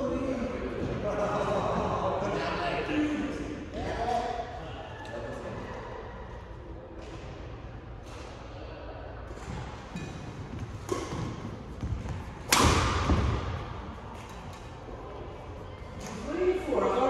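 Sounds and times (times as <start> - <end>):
racket hitting shuttlecock: 9.4 - 14.7.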